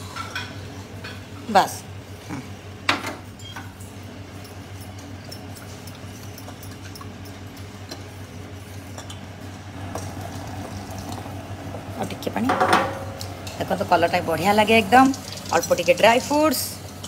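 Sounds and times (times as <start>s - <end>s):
steady low hum: 0.0s - 17.0s
metal spoon stirring in pot: 4.3s - 9.2s.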